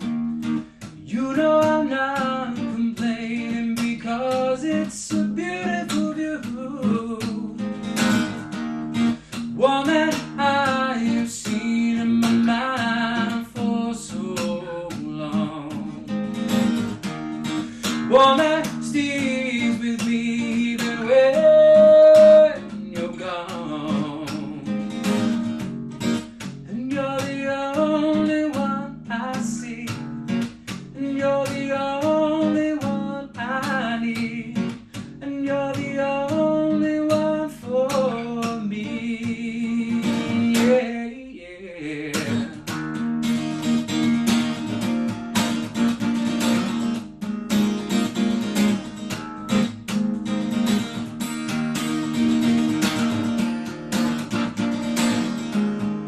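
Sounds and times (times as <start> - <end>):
acoustic guitar strumming: 0.0 - 56.0
man singing: 0.8 - 25.5, 26.4 - 42.8.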